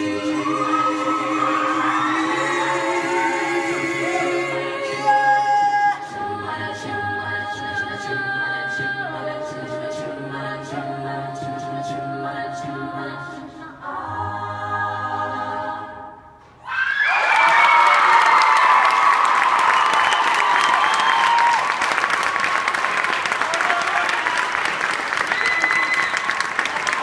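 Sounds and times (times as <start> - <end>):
a cappella group singing: 0.0 - 16.4
applause and cheering: 16.7 - 27.0.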